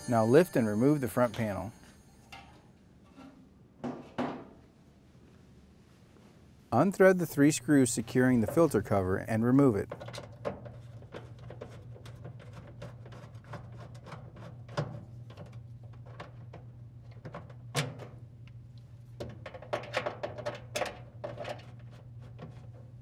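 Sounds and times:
steady low hum: 4.7 - 23.0.

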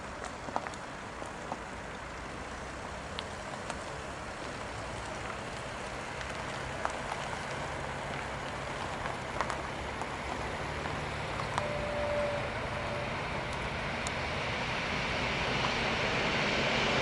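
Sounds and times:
electric train humming: 10.2 - 17.0.

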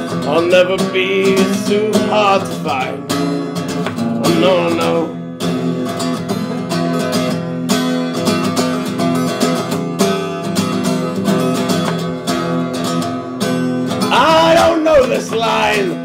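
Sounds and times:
acoustic guitar strumming: 0.0 - 16.0.

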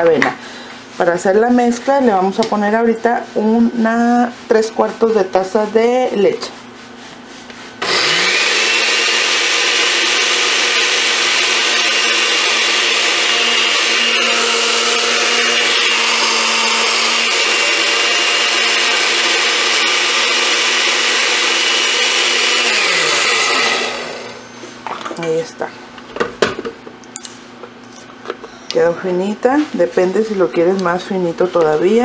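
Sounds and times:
blender running: 7.8 - 24.4.

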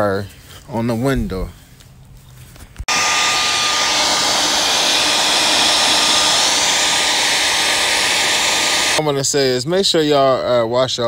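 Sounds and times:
hair dryer blowing: 2.9 - 9.0.

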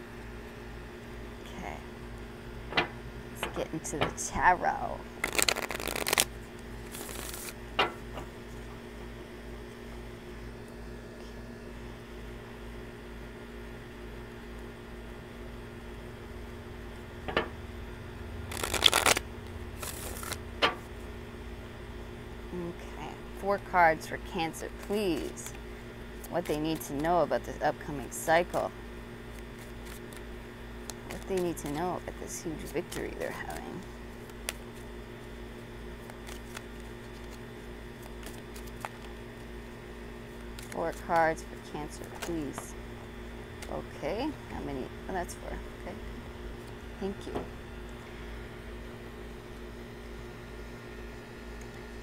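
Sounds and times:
low hum: 0.0 - 52.0
cards tapping: 5.2 - 6.2
cards being shuffled: 5.2 - 8.6, 18.4 - 20.8, 24.5 - 25.6, 26.2 - 27.2, 28.2 - 28.7, 29.3 - 35.3, 36.0 - 39.5, 40.3 - 41.2.

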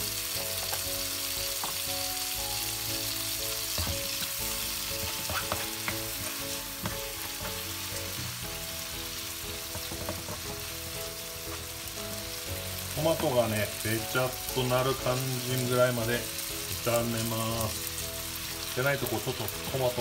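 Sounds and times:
tomatoes sizzling in hot oil: 0.0 - 20.0
spatula scraping and tapping pan: 3.7 - 7.6, 9.7 - 10.5.

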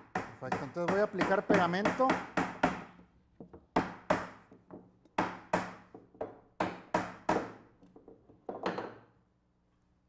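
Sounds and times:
hammer driving nails into wood: 0.0 - 3.0, 3.7 - 7.8.

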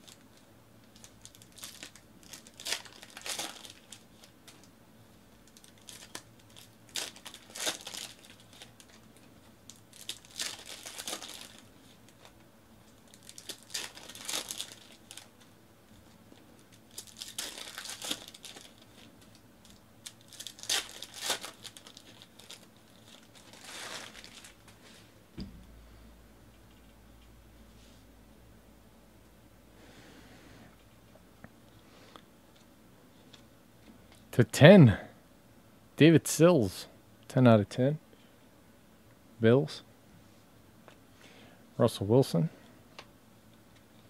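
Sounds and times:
foil packs tearing and crinkling: 0.9 - 4.6, 5.4 - 12.3, 13.0 - 15.5, 16.6 - 24.8.

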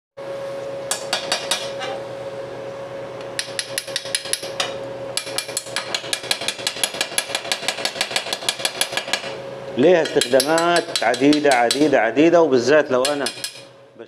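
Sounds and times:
steady hum: 0.2 - 14.0
chipping hammer tapping on metal: 0.9 - 1.8, 3.4 - 12.0, 13.0 - 13.7.

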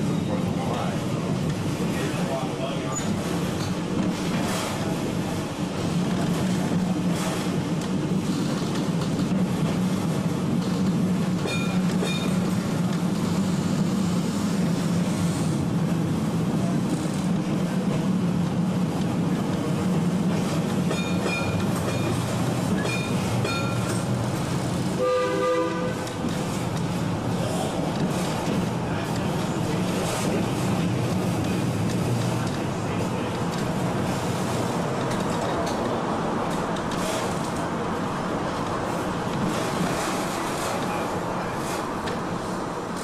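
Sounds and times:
tram rumbling along track: 0.0 - 43.0.

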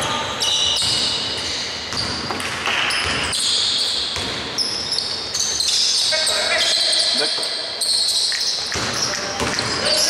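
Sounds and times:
sneakers squeaking on court: 0.0 - 10.0
basketball bouncing: 0.7 - 4.7, 8.3 - 10.0
players' voices echoing: 5.9 - 10.0.

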